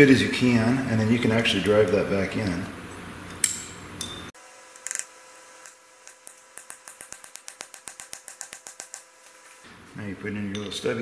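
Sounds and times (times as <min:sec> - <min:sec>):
hammer tapping metal pin: 0:06.1 - 0:09.1.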